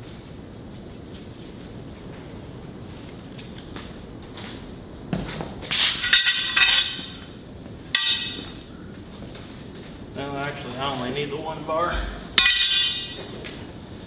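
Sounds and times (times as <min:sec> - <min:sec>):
steel bars clanking and ringing: 0:05.8 - 0:07.2, 0:08.0 - 0:08.6, 0:12.4 - 0:13.3.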